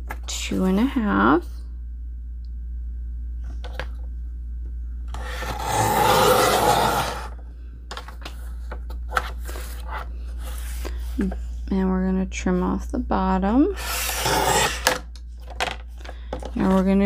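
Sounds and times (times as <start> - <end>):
paper trimmer blade cutting cardboard: 5.2 - 7.4, 13.8 - 15.0.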